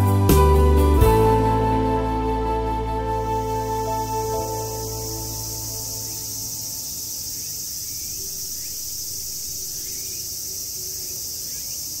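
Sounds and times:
insect chorus shrilling: 0:03.1 - 0:12.0.

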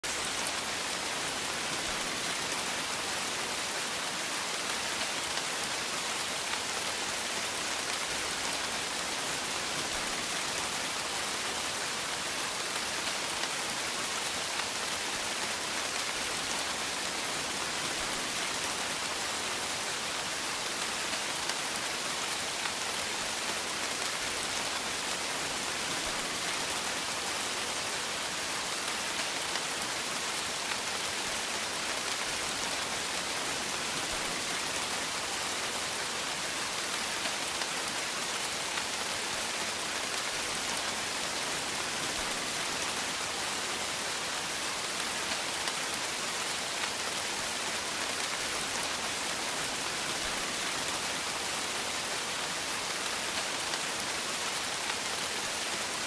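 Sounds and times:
light rain hiss: 0:00.0 - 0:56.0
faint ticks of raindrops: 0:00.1 - 0:56.0.

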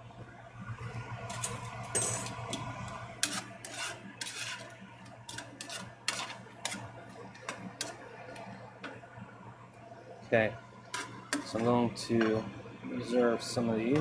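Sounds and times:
steady low hum: 0:00.0 - 0:14.0
metal utensil scraping frying pan: 0:03.2 - 0:06.9, 0:07.5 - 0:08.0, 0:10.9 - 0:12.4.

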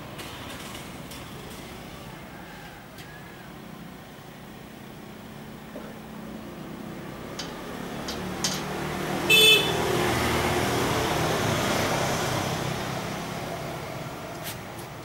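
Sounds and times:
vehicle passing by: 0:05.3 - 0:15.0
car horn toot: 0:09.3 - 0:10.0.

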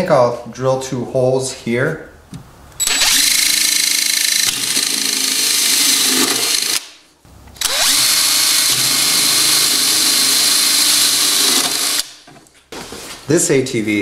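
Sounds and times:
cordless drill boring plastic: 0:02.8 - 0:06.9, 0:07.6 - 0:12.2.

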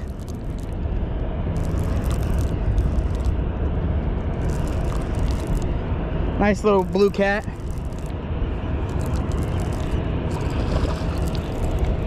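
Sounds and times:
steady low rumble: 0:00.0 - 0:12.0
fishing reel gears clicking: 0:04.4 - 0:05.7, 0:06.7 - 0:08.1, 0:08.9 - 0:10.5.

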